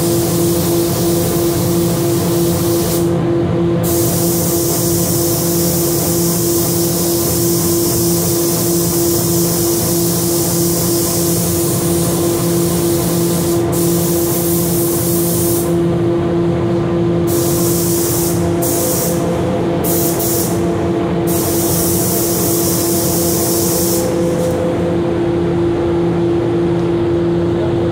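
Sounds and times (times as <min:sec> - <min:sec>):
machinery hum: 0:00.0 - 0:27.9
spray gun hissing: 0:00.1 - 0:03.1, 0:03.8 - 0:15.8, 0:17.3 - 0:20.7, 0:21.3 - 0:24.6.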